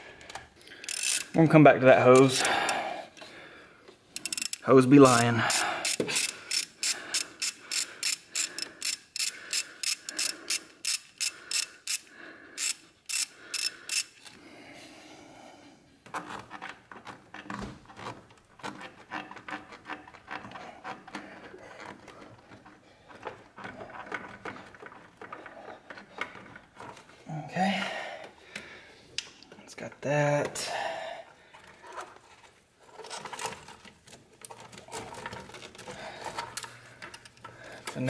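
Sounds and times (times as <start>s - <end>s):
hand ratchet clicking: 0.2s - 1.4s, 4.1s - 14.4s
rubber hose rubbing and crackling: 16.0s - 27.5s, 31.3s - 38.0s.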